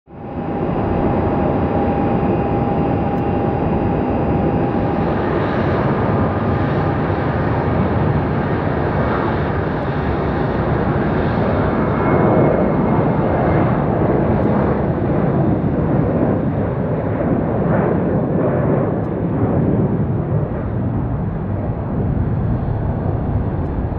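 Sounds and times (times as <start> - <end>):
thin steady whine: 0.1 - 7.4
jet engines at takeoff power: 0.1 - 23.9.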